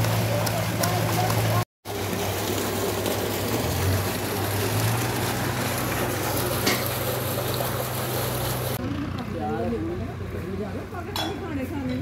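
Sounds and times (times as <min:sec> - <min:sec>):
water gushing into a tank: 0:00.0 - 0:08.8.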